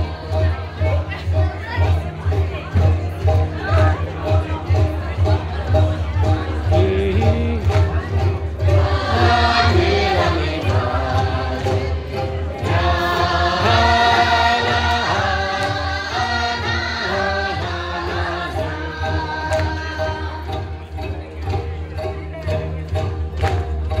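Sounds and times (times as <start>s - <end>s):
voices singing together: 0.0s - 1.8s, 6.3s - 20.8s.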